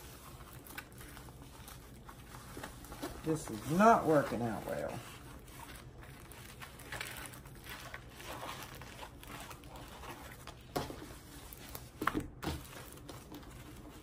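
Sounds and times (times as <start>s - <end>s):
paper rustling and crinkling: 0.0s - 14.0s.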